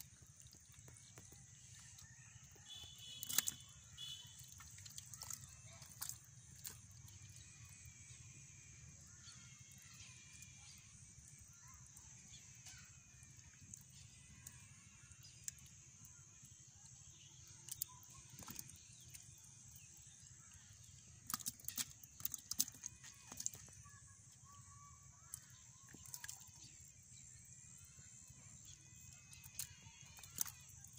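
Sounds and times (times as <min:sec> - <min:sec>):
hands splashing in muddy water: 0:00.0 - 0:07.4, 0:21.0 - 0:23.8
faint bird chirps: 0:00.0 - 0:30.9.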